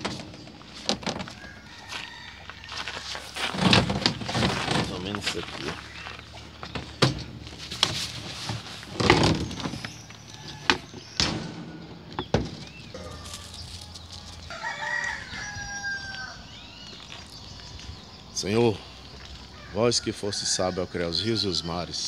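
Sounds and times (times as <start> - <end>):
roosters fighting: 0.0 - 22.0
rooster crowing: 1.2 - 3.5, 10.0 - 17.4, 19.4 - 22.0.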